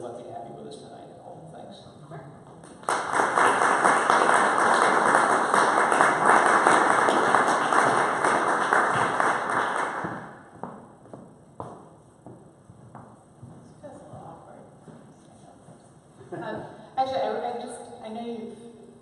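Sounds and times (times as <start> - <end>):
audience applauding: 2.6 - 10.6.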